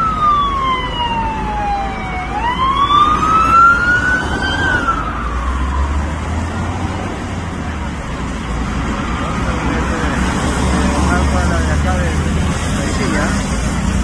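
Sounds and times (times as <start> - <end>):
emergency siren wailing: 0.0 - 6.5
highway traffic rumble: 0.0 - 14.0.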